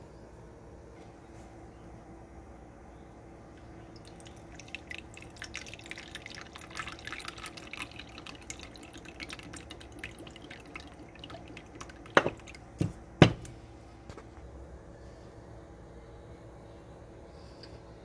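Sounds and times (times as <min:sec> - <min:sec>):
liquid trickling into a cup: 0:03.6 - 0:12.9
bottle knocking on counter: 0:12.2 - 0:13.5.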